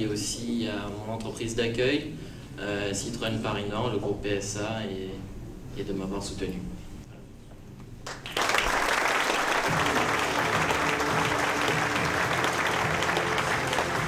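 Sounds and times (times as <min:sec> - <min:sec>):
applause: 0:08.0 - 0:14.0
background music with steady tones: 0:09.7 - 0:14.0.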